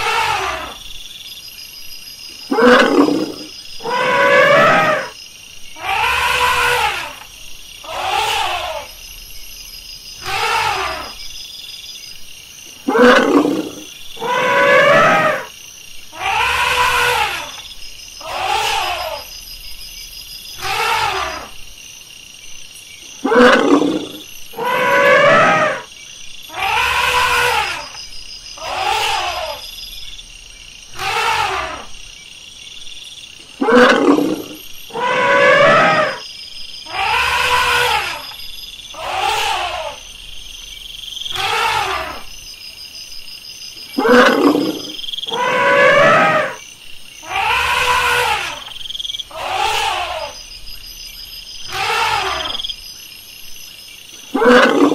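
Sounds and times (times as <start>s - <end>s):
elephant trumpeting: 2.5s - 5.1s, 5.8s - 7.2s, 12.9s - 15.5s, 23.3s - 25.8s, 26.6s - 27.9s, 31.0s - 31.9s, 33.6s - 36.2s, 36.9s - 38.3s, 39.0s - 40.0s, 41.3s - 42.2s, 44.0s - 46.6s, 47.2s - 48.7s, 49.3s - 50.4s, 51.7s - 52.6s, 54.3s - 54.9s.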